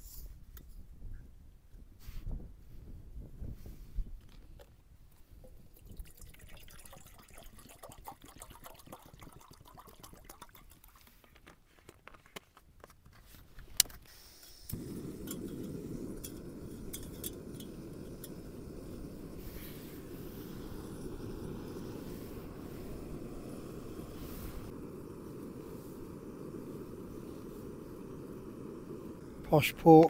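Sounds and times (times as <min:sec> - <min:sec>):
water trickling into pot: 0:05.6 - 0:11.1, 0:15.1 - 0:19.4
gas stove burner rushing: 0:14.4 - 0:30.0.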